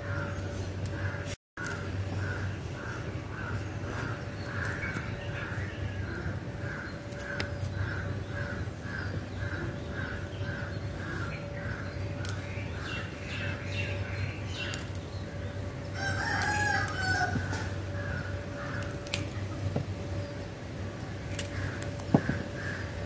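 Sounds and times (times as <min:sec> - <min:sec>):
rooster crowing: 0:16.0 - 0:17.8.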